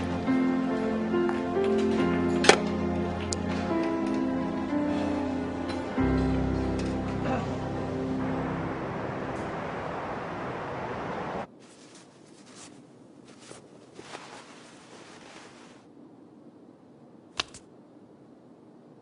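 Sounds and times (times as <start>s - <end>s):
steady rush of noise: 0.0s - 19.0s
sharp click: 17.4s - 17.7s.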